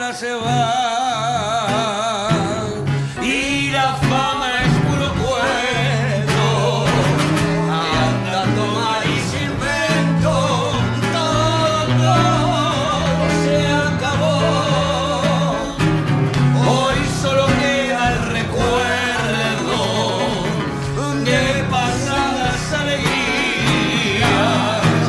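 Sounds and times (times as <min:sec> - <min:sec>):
person singing with vibrato: 0:00.0 - 0:25.0
piano and guitar tango: 0:00.0 - 0:25.0.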